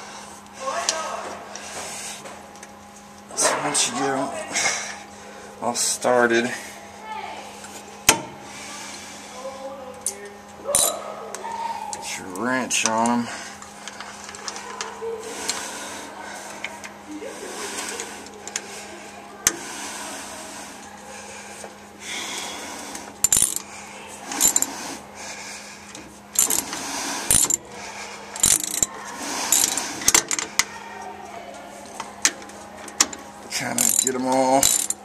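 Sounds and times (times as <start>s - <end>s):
steady low hum: 0.0s - 35.0s
metallic clinks and ratchet clicks: 10.8s - 11.0s, 23.2s - 23.7s, 24.4s - 24.7s, 26.4s - 26.7s, 27.3s - 27.6s, 28.4s - 28.9s, 29.5s - 30.4s, 33.8s - 35.0s.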